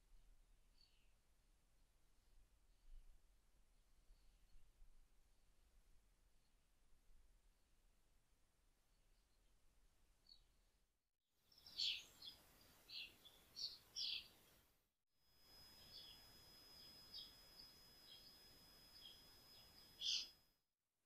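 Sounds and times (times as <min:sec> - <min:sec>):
small birds chirping: 0:11.5 - 0:14.6, 0:15.4 - 0:20.4
faint high whine: 0:15.3 - 0:20.6.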